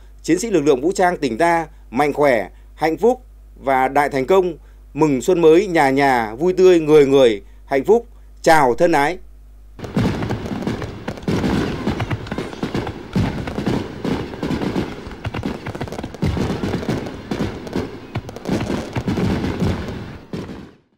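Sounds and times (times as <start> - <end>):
firework booms: 9.8 - 20.9
firework crackle: 9.8 - 20.9.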